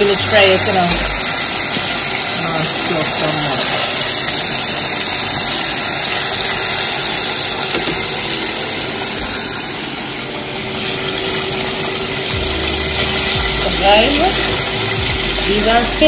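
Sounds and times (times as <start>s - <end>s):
chicken deep-frying in oil: 0.0s - 16.0s.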